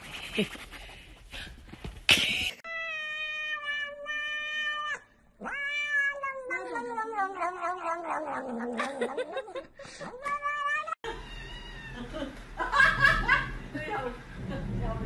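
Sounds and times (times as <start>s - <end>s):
cat meowing: 2.7s - 8.8s, 10.2s - 12.0s.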